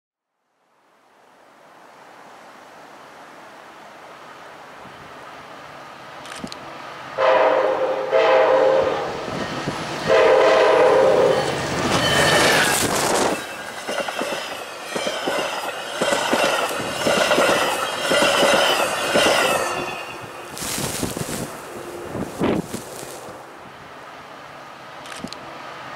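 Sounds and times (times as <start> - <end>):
train rushing through snow: 3.4 - 25.9
locomotive horn blasts: 7.2 - 9.2, 10.0 - 12.3
train wheels clicking on rails: 11.2 - 23.4, 24.9 - 25.6.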